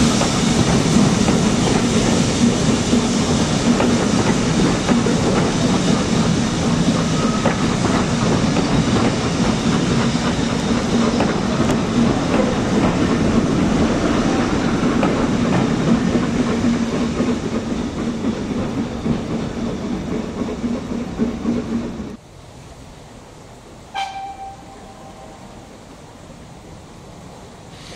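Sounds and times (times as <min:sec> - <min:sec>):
train wheels clickety-clack on rails: 0:00.0 - 0:22.2.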